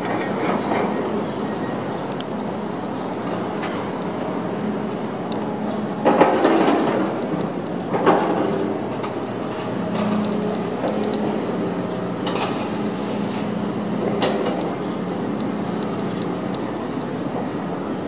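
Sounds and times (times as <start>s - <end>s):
crane engine humming: 0.0s - 18.0s.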